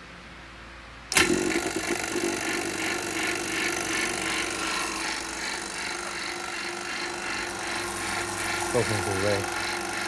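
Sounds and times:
vacuum pump running: 1.1s - 10.0s.

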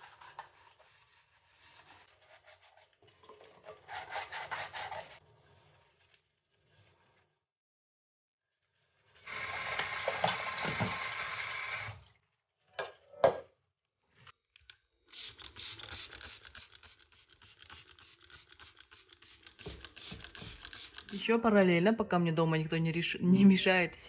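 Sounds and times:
countertop being scrubbed: 0.0s - 3.0s, 3.8s - 5.8s.

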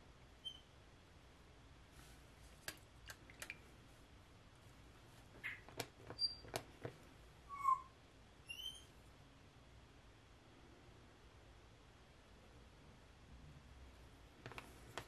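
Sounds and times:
plastic cups clicking and tapping: 2.6s - 3.7s, 5.3s - 7.1s.

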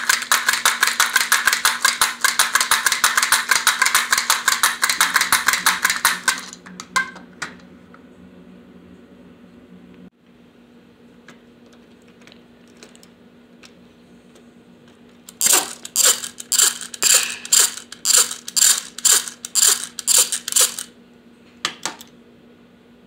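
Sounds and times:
plastic toy mechanism rattling clicks: 0.0s - 6.6s, 15.3s - 20.9s.

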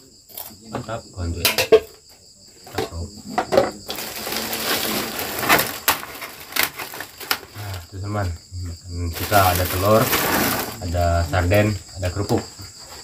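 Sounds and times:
plastic wrapping crinkling: 3.9s - 7.9s, 9.1s - 11.0s.

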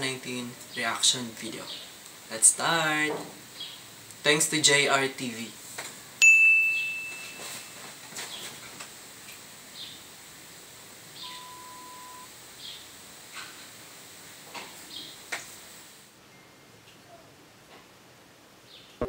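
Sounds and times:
bright ding: 6.2s - 7.8s
faint chirps: 11.1s - 12.9s
steady beep: 11.2s - 12.3s.

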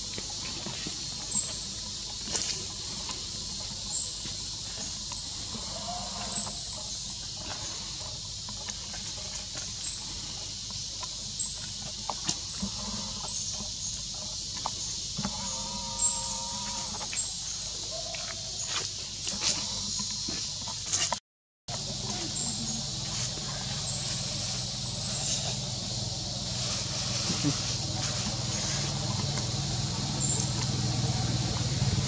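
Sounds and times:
high insect drone: 0.0s - 32.0s
dry leaves rustling: 21.8s - 32.0s
monkey call: 26.7s - 29.3s.

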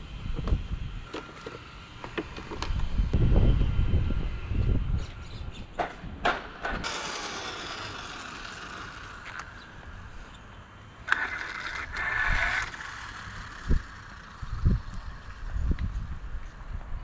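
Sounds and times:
rc car drivetrain whirring: 6.6s - 9.8s, 11.0s - 15.7s.

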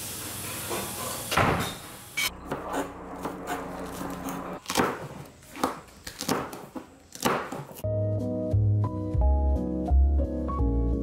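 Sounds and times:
knife chopping on cutting board: 2.5s - 7.8s.

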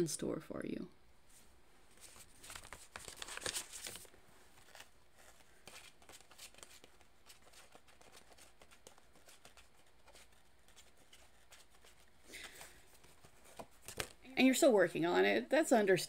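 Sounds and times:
cards being shuffled: 1.9s - 14.2s.

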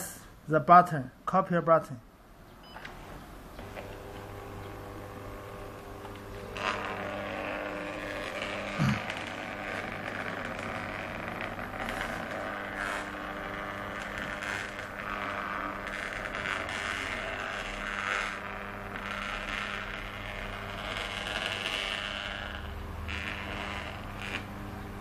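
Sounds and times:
stencil copier motor whirring: 2.8s - 24.5s.

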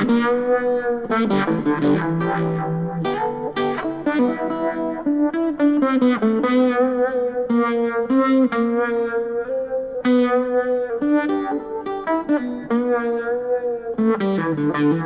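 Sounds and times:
electric guitar melodic line with vibe: 0.0s - 15.0s.

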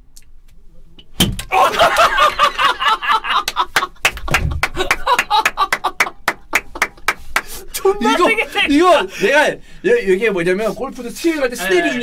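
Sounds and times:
men laughing: 1.5s - 7.2s
hand claps: 3.4s - 7.6s.

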